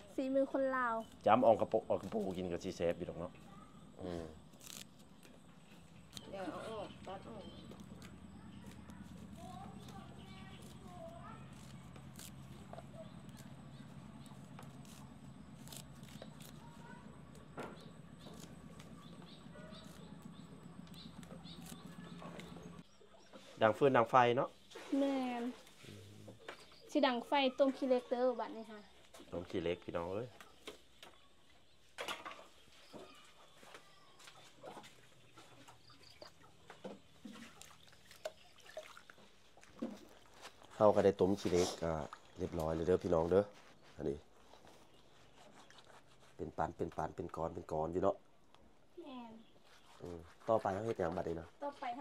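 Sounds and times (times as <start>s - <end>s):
steady low hum: 2.9s - 23.0s
leaves snapping off stems: 4.5s - 5.3s, 11.4s - 13.5s.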